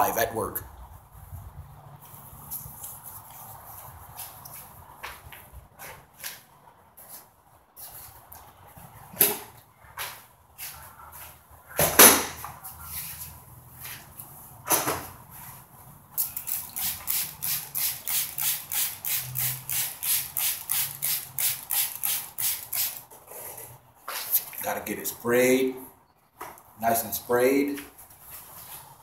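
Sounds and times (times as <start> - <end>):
trigger spray bottle squirting: 16.2 - 23.0.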